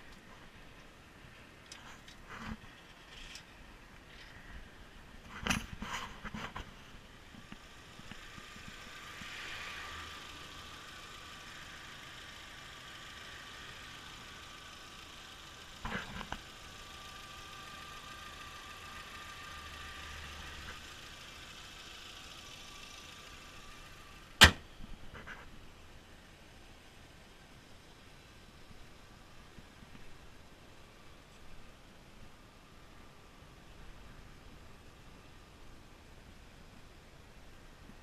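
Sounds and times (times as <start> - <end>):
car engine idling: 7.4 - 25.2
car bonnet slamming: 24.4 - 24.7
car door shutting: 24.4 - 24.7.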